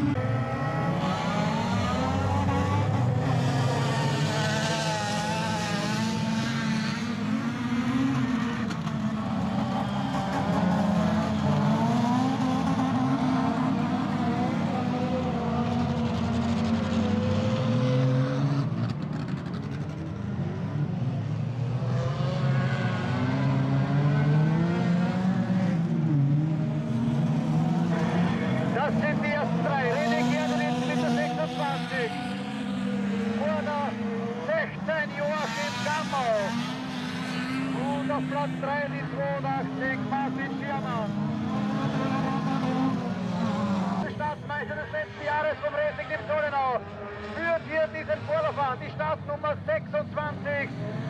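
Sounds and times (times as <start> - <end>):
race car engines revving: 0.0 - 51.0.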